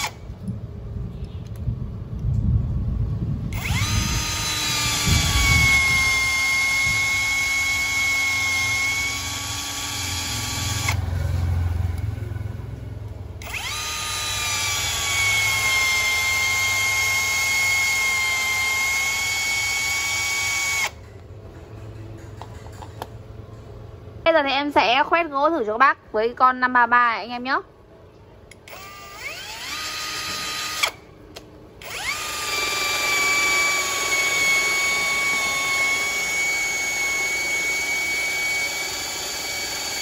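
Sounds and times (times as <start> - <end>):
cordless drill motor whining: 0.0 - 0.3, 3.5 - 11.4, 13.4 - 21.0, 28.5 - 31.1, 31.8 - 40.0.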